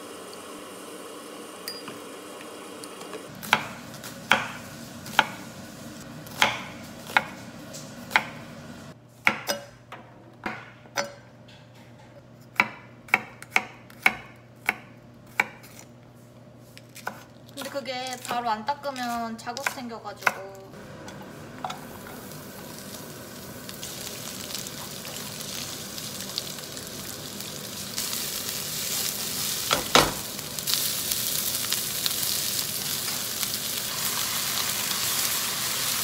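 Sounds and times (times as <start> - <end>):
knife chopping on wooden board: 12.6 - 15.8.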